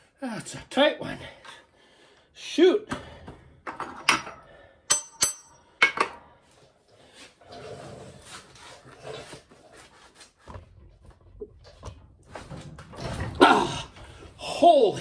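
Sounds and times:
steel tools clinking: 3.7 - 6.1.

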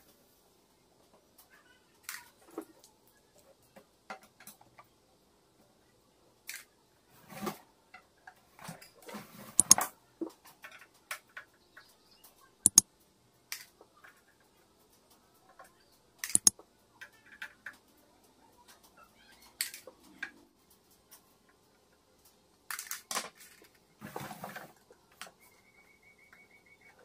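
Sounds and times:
small clicks and scrapes: 6.5 - 12.9, 13.5 - 25.4
sharp clicks: 9.6 - 9.8, 16.2 - 16.6.

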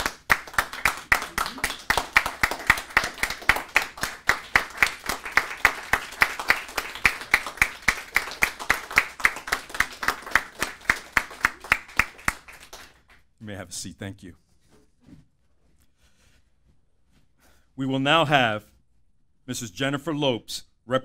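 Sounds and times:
audience applauding: 0.0 - 13.2
close hand clapping: 0.0 - 13.3.

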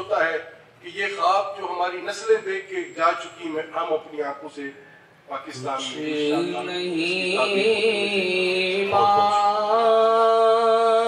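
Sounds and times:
chant-like vocal music: 5.8 - 11.0.

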